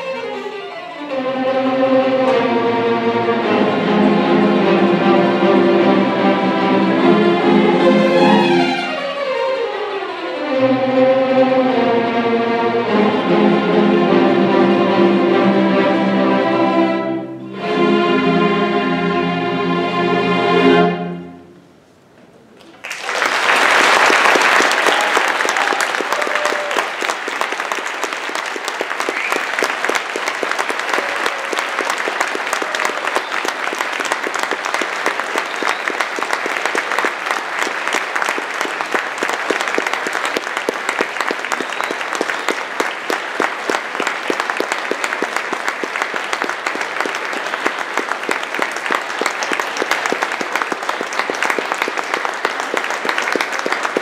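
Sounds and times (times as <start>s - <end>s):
string orchestra chord: 0.0s - 21.7s
audience applauding: 22.6s - 54.0s.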